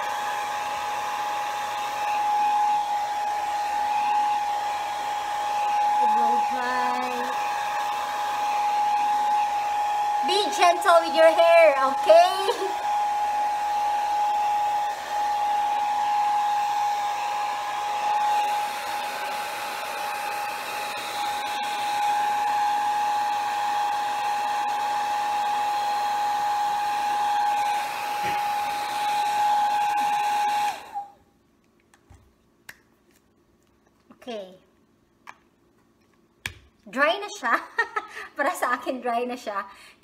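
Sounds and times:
hair dryer blowing: 0:00.0 - 0:31.2.

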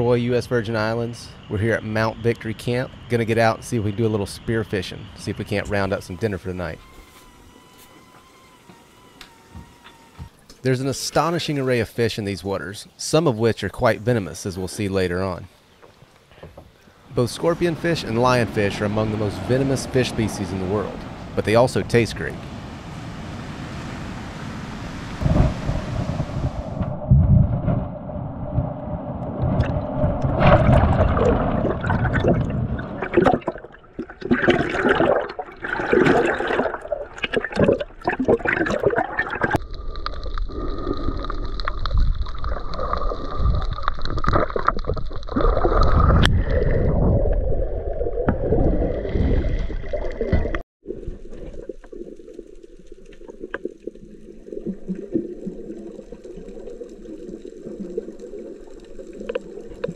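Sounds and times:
muffled underwater hush: 0:14.6 - 0:36.7
water sloshing and gurgling: 0:15.7 - 0:59.9.

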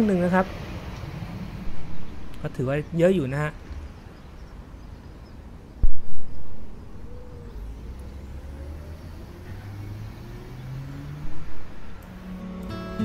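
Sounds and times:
wind rumbling on microphone: 0:00.0 - 0:10.0
faint hum of drone motors: 0:00.0 - 0:12.6.

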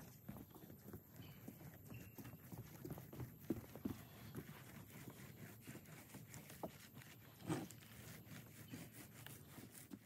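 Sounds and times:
roller rolling adhesive: 0:02.3 - 0:10.0.

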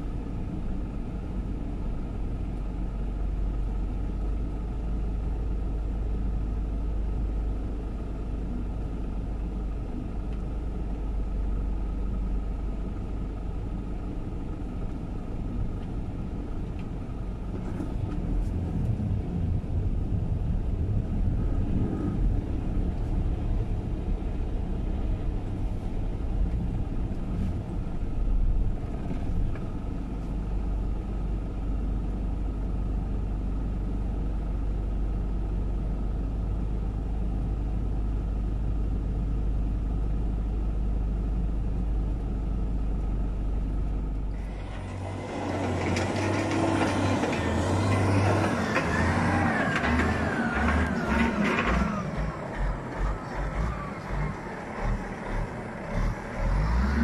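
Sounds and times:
vehicle engine running: 0:00.0 - 0:57.0
tyre and road rumble: 0:43.1 - 0:57.0.

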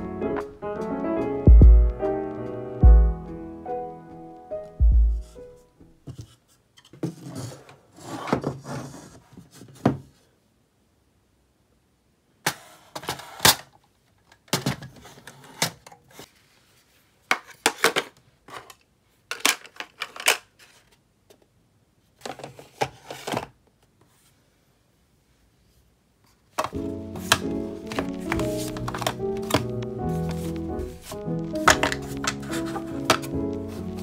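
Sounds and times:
plastic drawer organiser set down: 0:26.6 - 0:34.0.

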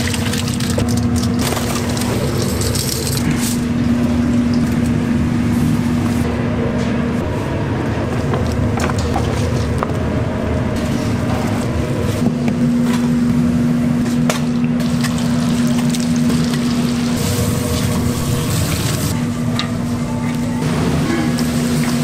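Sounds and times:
machine hum: 0:00.0 - 0:22.0
low rumble: 0:00.9 - 0:14.0.

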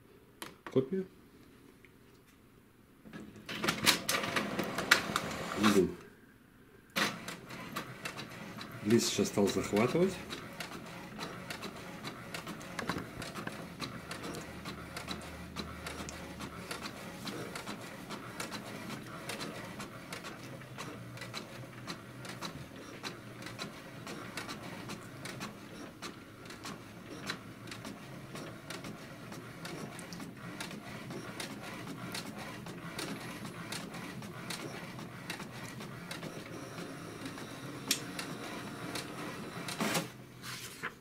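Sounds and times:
printer carriage clicking: 0:03.5 - 0:05.5.

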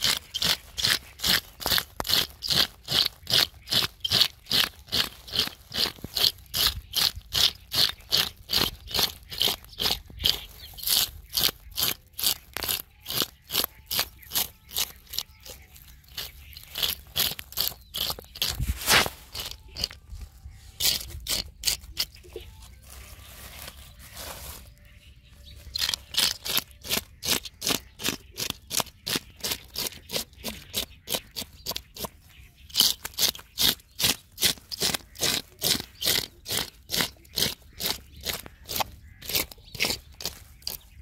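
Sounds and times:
scaler scraping fish scales: 0:00.0 - 0:41.0.

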